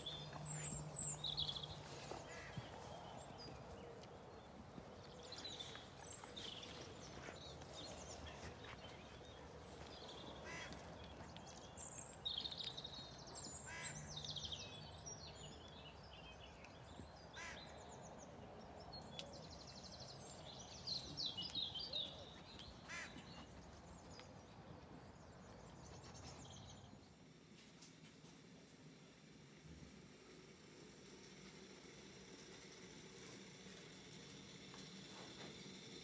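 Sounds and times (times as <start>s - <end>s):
songbirds chirping and trilling: 0.0s - 36.0s
crows cawing: 10.4s - 10.9s, 17.4s - 17.6s, 22.9s - 23.2s.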